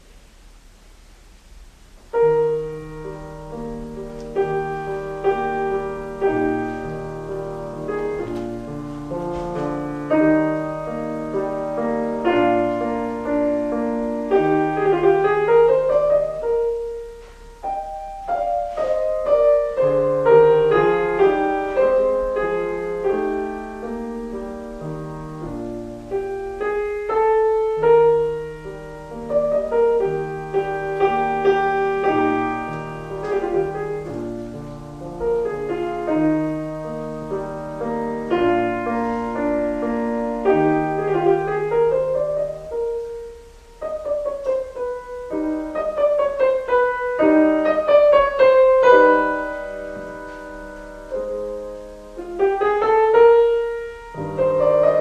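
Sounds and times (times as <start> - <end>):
piano music: 1.8 - 55.0.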